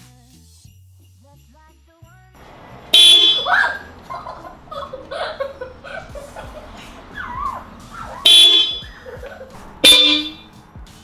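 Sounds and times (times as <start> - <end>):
dual-tone car horn blasts: 2.4 - 5.1, 8.2 - 9.0, 9.8 - 10.6.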